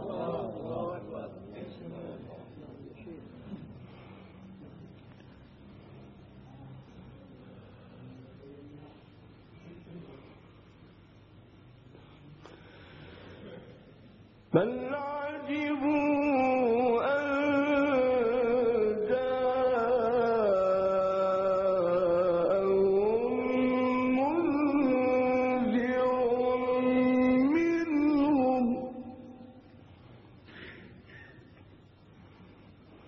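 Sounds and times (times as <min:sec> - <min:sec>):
man reciting melodically: 0:14.4 - 0:29.7.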